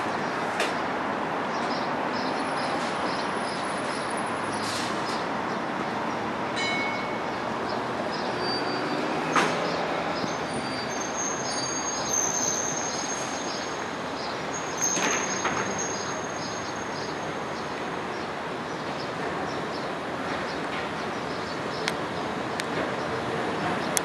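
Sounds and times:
tram wheels squealing: 6.5s - 21.6s.

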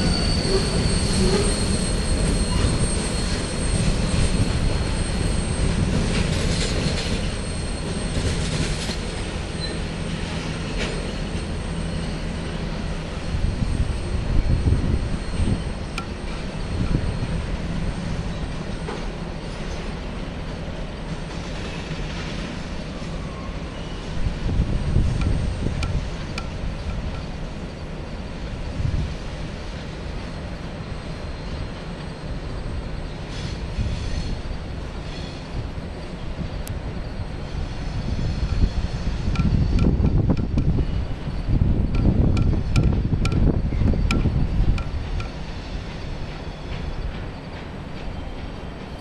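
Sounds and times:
faint thin wheel squeal: 0.0s - 8.9s, 9.6s - 17.5s, 21.3s - 25.7s, 30.2s - 40.0s
freight train rumbling past: 0.0s - 49.0s
train wheel clicks: 24.4s - 27.7s, 38.3s - 49.0s.

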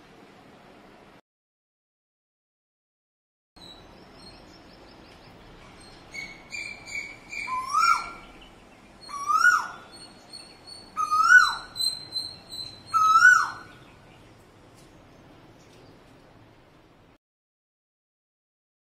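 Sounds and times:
high bird chirps: 3.6s - 14.3s
bird whistled call: 5.8s - 8.4s, 9.0s - 13.8s.

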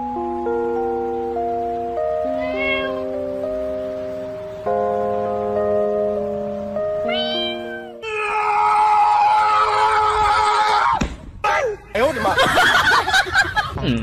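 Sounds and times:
music of held chords: 0.0s - 8.0s
cat-like meows: 2.3s - 3.1s, 7.0s - 8.3s.

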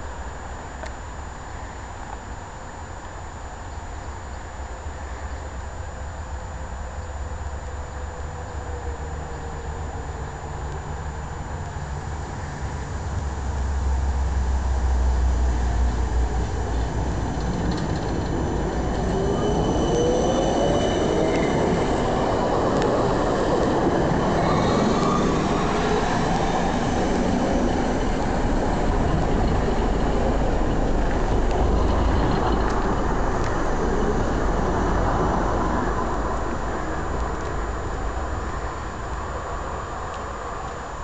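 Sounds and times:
tram wheels rolling on rails: 0.1s - 41.0s
wheel squeal: 16.7s - 28.2s.

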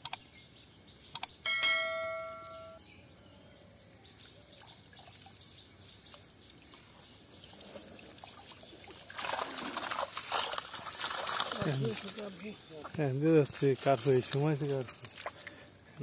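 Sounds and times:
water dripping off a net: 4.1s - 12.5s
net splashing in water: 7.5s - 12.2s.

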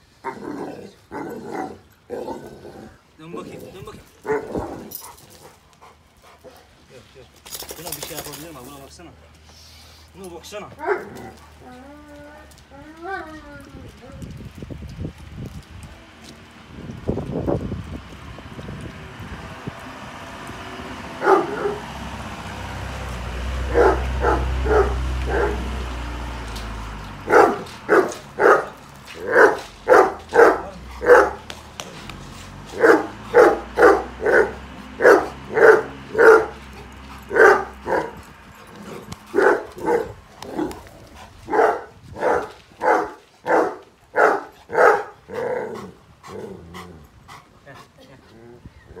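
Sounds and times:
dog barking: 4.2s - 4.9s, 10.8s - 11.2s, 21.2s - 21.9s, 23.7s - 25.7s, 27.3s - 31.4s, 32.7s - 36.6s, 37.3s - 38.2s, 39.3s - 40.7s, 41.5s - 45.2s.

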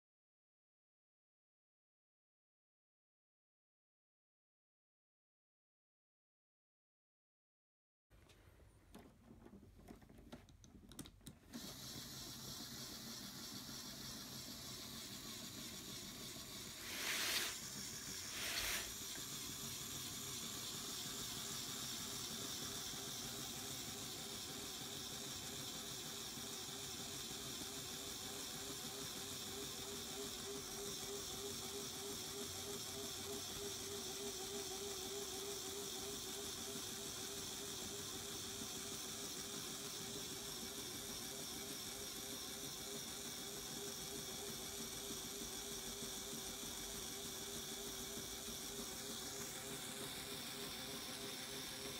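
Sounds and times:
compressed air hisses: 16.6s - 19.2s.

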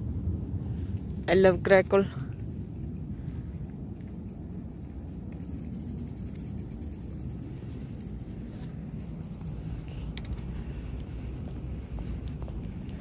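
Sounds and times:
steady low rumble: 0.0s - 13.0s
high-pitched ticking trill: 5.4s - 8.3s.

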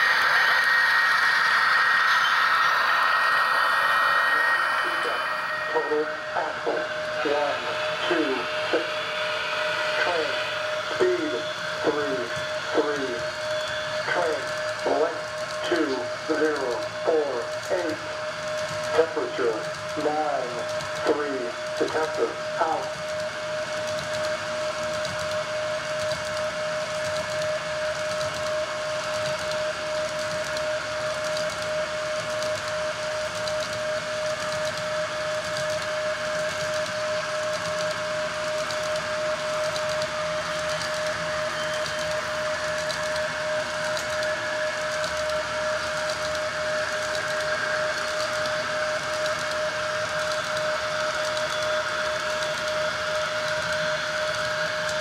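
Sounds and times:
model train high whine: 0.0s - 55.0s
model train wheels clicking: 6.8s - 55.0s.

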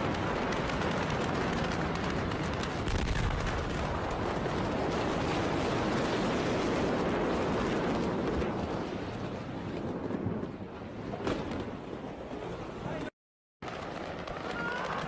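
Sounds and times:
fire crackling and popping: 0.0s - 5.2s.

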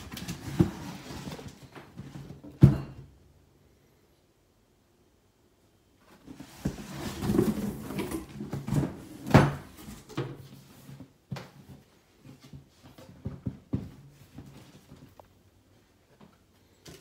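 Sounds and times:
cardboard scraping and rustling: 0.0s - 2.4s, 6.1s - 11.2s.

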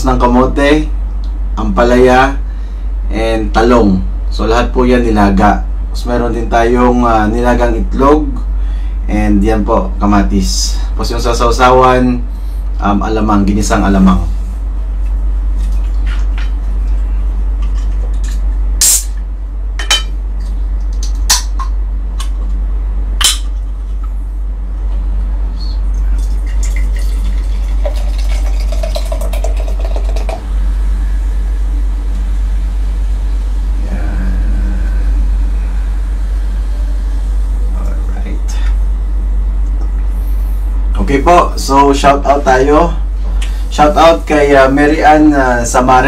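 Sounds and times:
loud low hum: 0.0s - 46.0s
tableware clinking: 19.8s - 20.2s.

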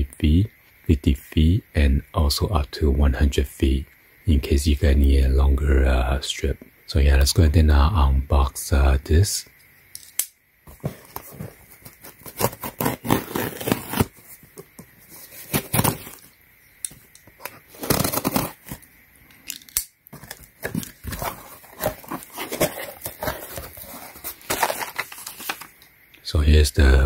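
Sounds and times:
cardboard flaps tearing and rustling: 10.7s - 16.3s, 17.4s - 18.8s, 20.1s - 25.7s
utility knife slitting tape: 12.2s - 14.1s, 17.4s - 18.8s.

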